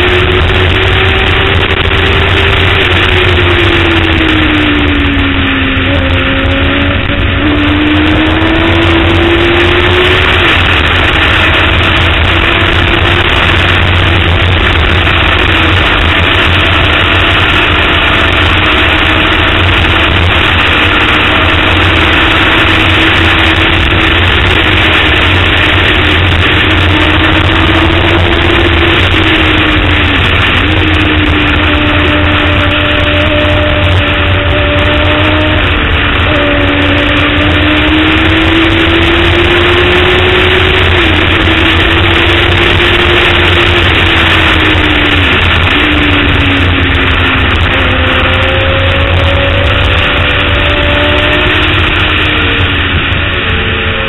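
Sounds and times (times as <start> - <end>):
heavy wind rush: 0.0 - 54.0
motorbike engine at high revs: 0.0 - 54.0.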